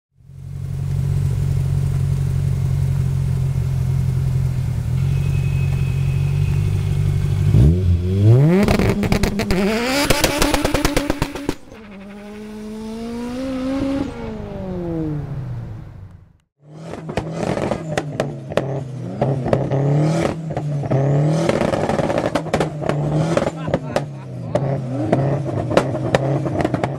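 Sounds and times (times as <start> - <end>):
car engine revving: 0.3 - 26.9
exhaust pops and backfire: 0.4 - 4.9, 6.5 - 15.0, 16.1 - 26.9
tyres screeching: 10.2 - 15.0.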